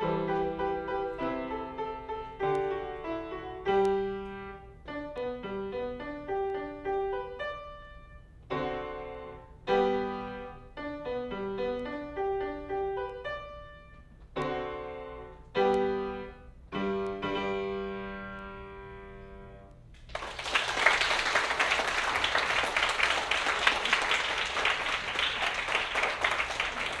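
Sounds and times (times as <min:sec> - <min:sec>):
grand piano chords: 0:00.0 - 0:19.9
audience applause: 0:20.1 - 0:27.0.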